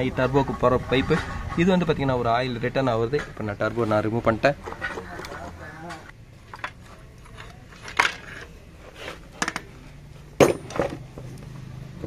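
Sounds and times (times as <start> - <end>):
metal clinks and knocks: 10.4 - 11.3.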